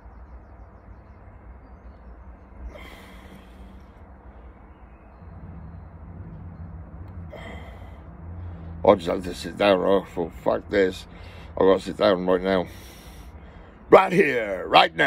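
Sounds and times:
man breathing heavily: 2.5 - 4.7, 7.2 - 8.8, 11.0 - 11.6, 12.6 - 13.9
low rumble: 2.6 - 8.9.

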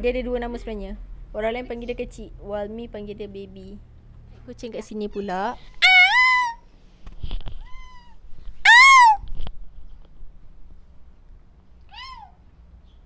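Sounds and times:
cat meowing: 5.2 - 6.6, 7.6 - 9.2, 11.9 - 12.4.

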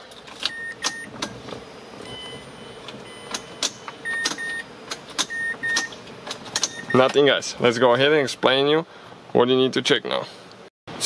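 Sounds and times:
ignition key clicks: 2.8 - 7.2.

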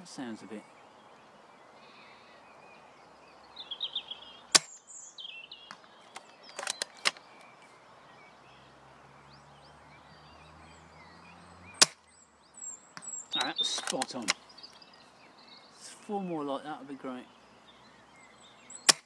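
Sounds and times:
airsoft rifle shot: 4.6 - 4.8, 11.8 - 12.0
quiet clicks: 5.7 - 7.6, 13.0 - 14.8.

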